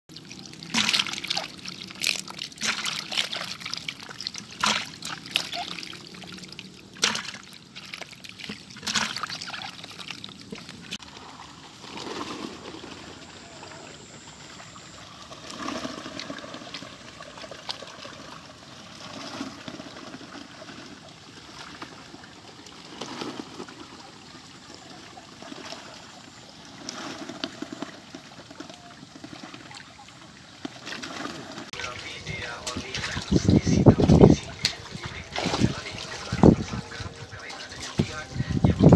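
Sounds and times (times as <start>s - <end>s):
water splashing in a basin: 0.1s - 38.9s
water trickling and lapping: 0.1s - 38.9s.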